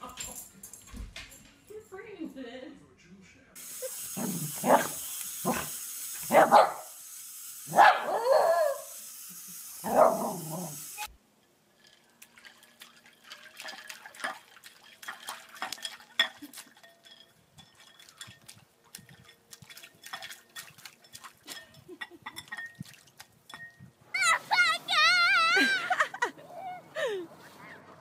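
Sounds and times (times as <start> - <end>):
small dog barking: 4.2 - 5.7, 6.3 - 6.9, 7.7 - 8.8, 9.8 - 10.6
ice cubes clinking in water: 11.4 - 23.9.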